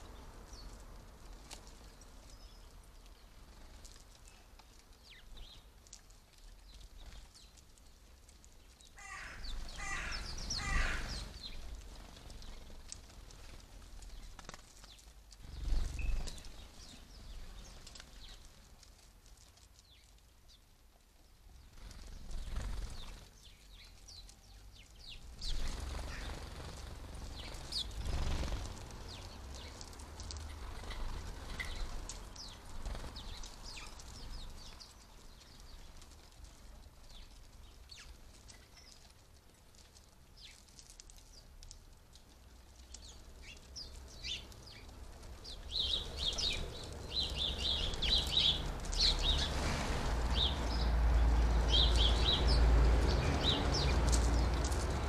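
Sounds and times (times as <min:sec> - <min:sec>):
sparrows chirping: 0:00.0 - 0:05.9, 0:06.6 - 0:13.4, 0:14.0 - 0:18.6, 0:21.5 - 0:39.1, 0:40.3 - 0:41.6, 0:42.8 - 0:55.0
wing flutters: 0:09.2 - 0:18.7, 0:21.6 - 0:24.0, 0:25.1 - 0:39.1, 0:44.2 - 0:55.0.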